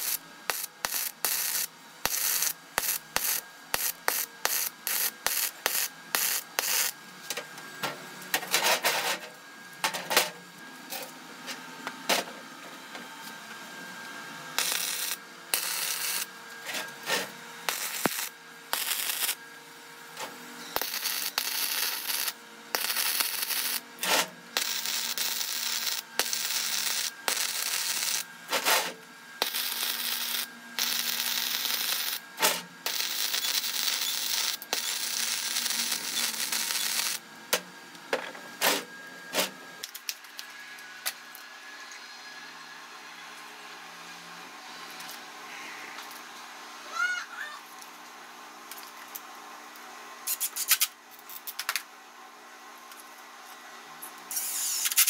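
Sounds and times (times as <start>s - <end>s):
welder arc crackling and hissing: 0.0s - 9.9s, 13.2s - 41.4s, 54.2s - 55.0s.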